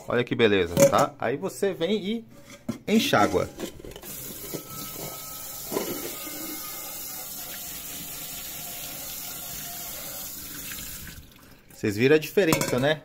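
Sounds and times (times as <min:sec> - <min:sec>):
tap water running onto saucepan: 0:04.1 - 0:11.8.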